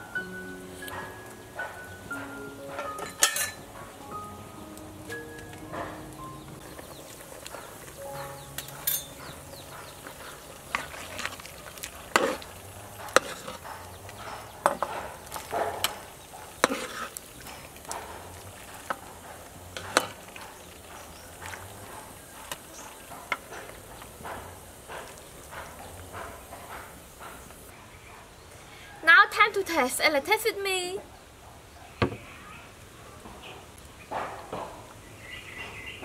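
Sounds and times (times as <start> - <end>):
ladle clinking on pot and bowl: 2.8 - 3.6, 8.1 - 9.4
soup bubbling: 4.8 - 27.7
ladle stirring in pot: 5.4 - 27.6.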